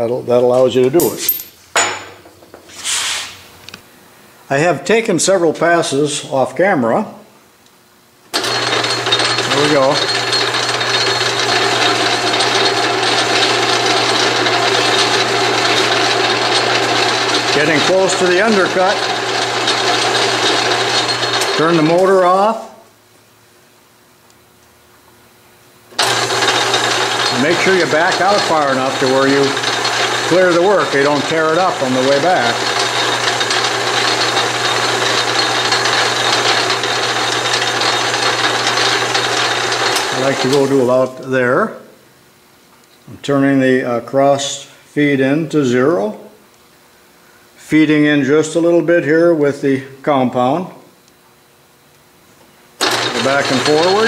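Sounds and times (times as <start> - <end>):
tool cutting metal: 8.4 - 22.4, 26.0 - 40.9, 52.8 - 54.0
metal lathe motor hum: 8.4 - 22.5, 26.0 - 41.3, 52.8 - 54.0.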